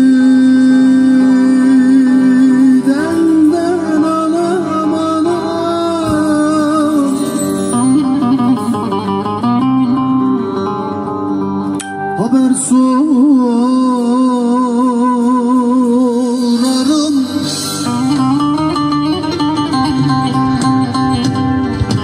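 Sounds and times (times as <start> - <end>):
man singing long held notes: 0.0 - 10.3, 12.1 - 18.6
plucked lute accompaniment: 0.0 - 22.0.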